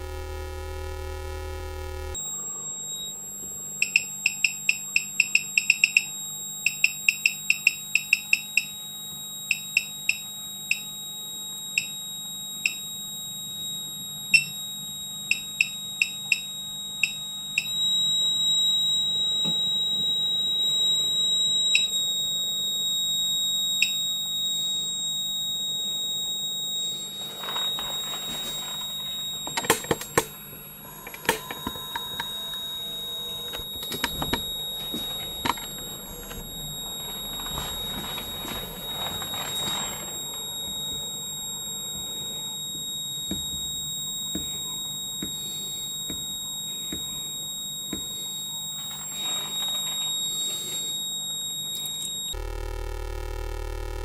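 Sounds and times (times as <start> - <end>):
high-pitched electronic whine: 0.0 - 4.0, 17.0 - 54.0.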